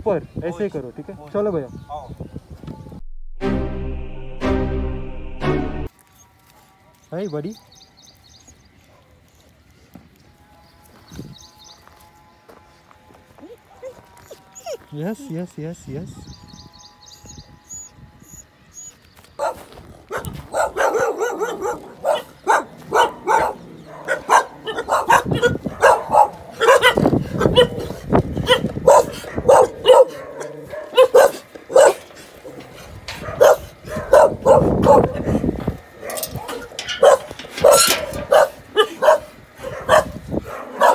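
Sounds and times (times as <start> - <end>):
dogs barking: 8.8 - 9.3, 19.4 - 40.9.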